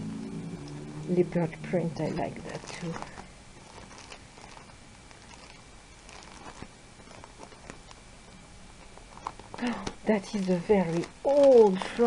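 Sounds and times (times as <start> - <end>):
binder pages turning: 1.7 - 8.0, 8.7 - 12.0.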